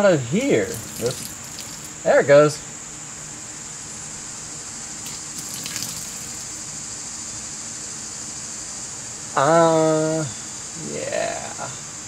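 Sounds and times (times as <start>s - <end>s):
steady low hum: 0.0s - 8.4s
coolant gushing and splashing: 0.4s - 2.0s, 5.0s - 6.6s.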